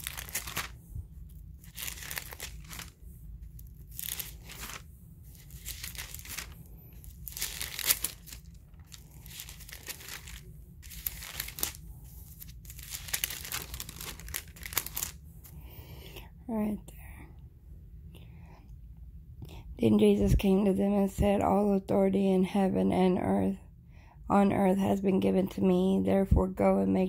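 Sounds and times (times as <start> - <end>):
thin pages being turned: 0.0 - 15.2.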